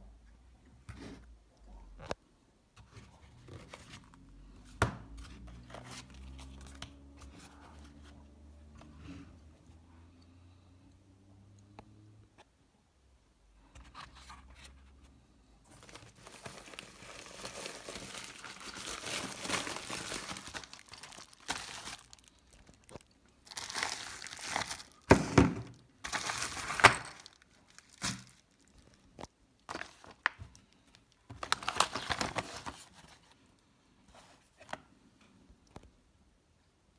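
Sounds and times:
plastic packaging crinkling: 15.7s - 33.2s.

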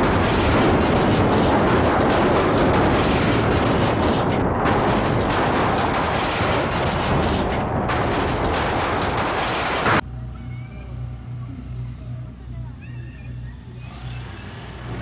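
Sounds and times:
propeller grinding on pavement: 0.0s - 10.0s, 13.4s - 15.0s.

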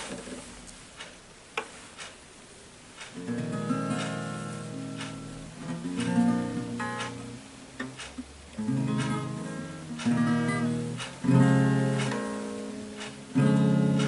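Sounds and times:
light taps on guitar: 3.0s - 14.0s
acoustic guitar strumming: 3.1s - 14.0s.

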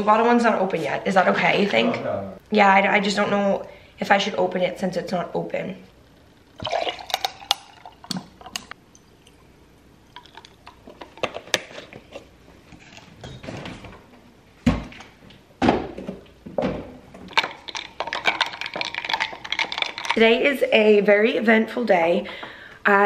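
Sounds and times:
liquid pouring into glass jar: 6.6s - 10.8s, 17.3s - 20.2s.

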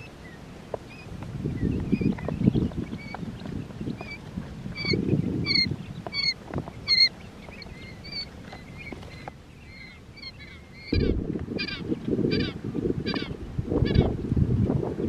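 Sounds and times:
chicks peeping: 0.0s - 14.1s
low rumble: 10.9s - 12.9s.

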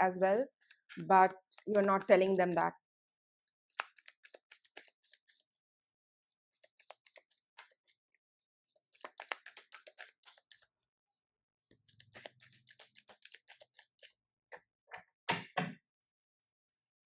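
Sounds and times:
cards slapping: 3.7s - 5.4s, 8.9s - 10.6s
cards being shuffled: 3.7s - 5.5s, 6.6s - 8.0s, 8.7s - 10.7s, 11.8s - 14.2s.

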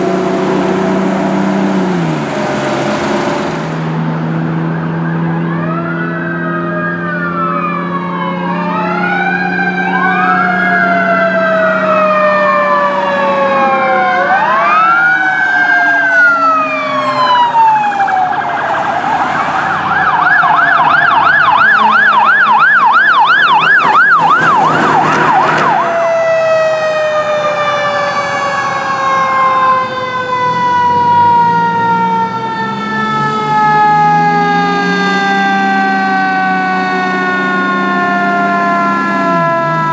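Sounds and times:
emergency sirens wailing: 0.0s - 39.9s
low rising siren tone: 0.0s - 39.9s
falling siren tone: 4.3s - 39.9s
siren yelp: 4.6s - 39.9s
harsh horn blast: 18.0s - 20.0s.

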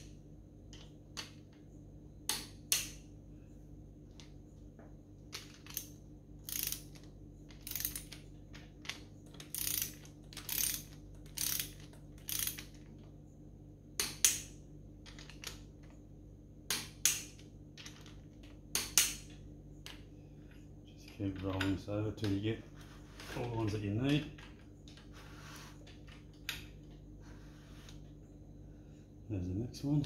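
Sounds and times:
ratchet wrench ratcheting: 5.6s - 8.2s, 9.3s - 12.8s
sharp torque wrench clicks: 5.7s - 7.0s, 9.4s - 12.7s.

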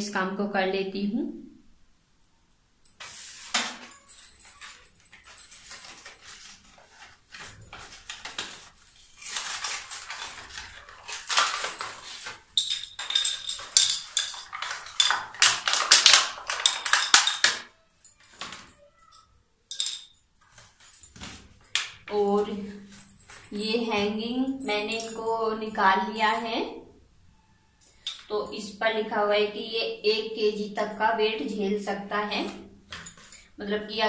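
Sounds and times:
plastic packaging crinkling and tearing: 4.5s - 12.5s, 14.5s - 17.6s.

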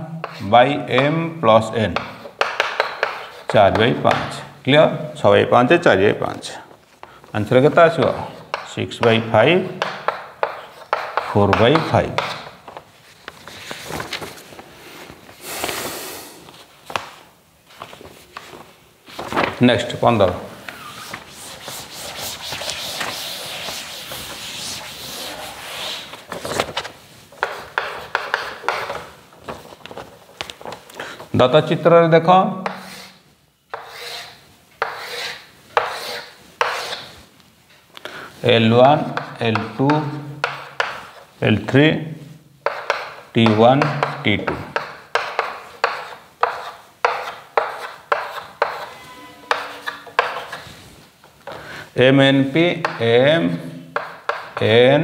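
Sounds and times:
chalk scratching and tapping: 0.2s - 1.1s, 2.0s - 4.4s, 7.9s - 13.5s, 21.0s - 26.2s, 27.3s - 29.1s, 32.6s - 37.2s, 39.0s - 41.3s, 42.6s - 51.6s, 52.5s - 53.1s, 53.9s - 54.9s
duster scrubbing chalkboard: 7.9s - 12.5s, 20.6s - 26.6s, 27.4s - 29.2s, 32.6s - 37.3s, 42.6s - 51.6s.

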